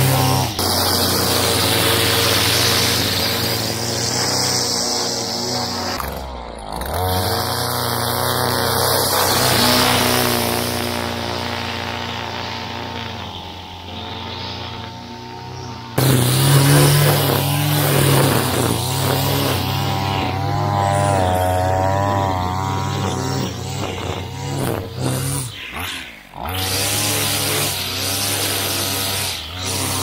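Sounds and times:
two-stroke trimmer engine revving: 0:00.0 - 0:30.0.

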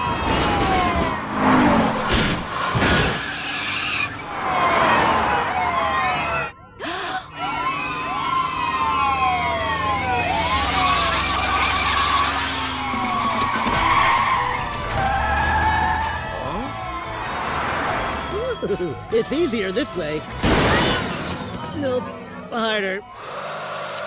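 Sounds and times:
police sirens wailing: 0:00.0 - 0:24.0
tyres screeching: 0:02.2 - 0:04.4, 0:10.5 - 0:18.7.

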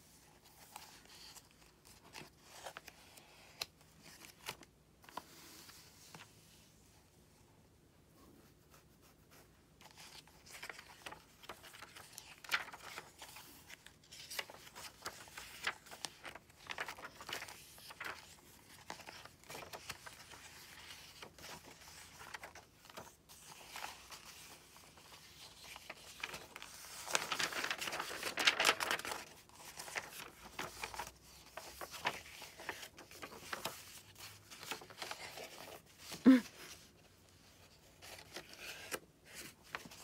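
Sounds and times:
paper pages rustling: 0:00.0 - 0:06.7, 0:09.3 - 0:40.0.

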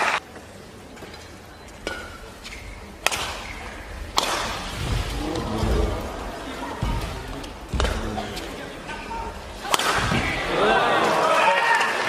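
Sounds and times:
crowd murmur: 0:00.0 - 0:12.0
racket hitting shuttlecock: 0:01.8 - 0:05.8, 0:06.8 - 0:08.3, 0:09.6 - 0:10.6.

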